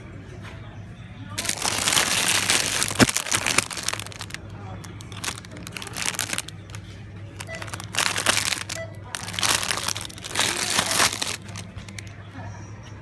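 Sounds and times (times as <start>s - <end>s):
plastic bag crinkling: 1.4s - 6.8s, 7.4s - 12.1s.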